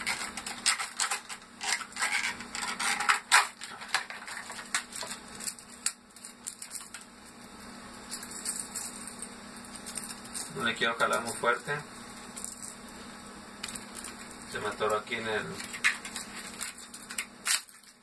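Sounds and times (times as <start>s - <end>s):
plastic blister pack crackling: 0.0s - 8.1s, 12.0s - 18.0s.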